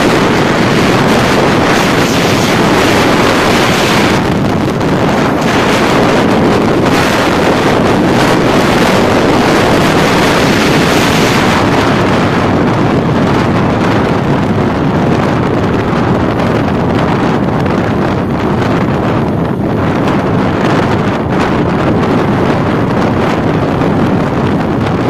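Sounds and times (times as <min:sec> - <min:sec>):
motorcycle engine and tyre drone: 0:00.0 - 0:25.0
wind rushing over microphone: 0:00.0 - 0:25.0.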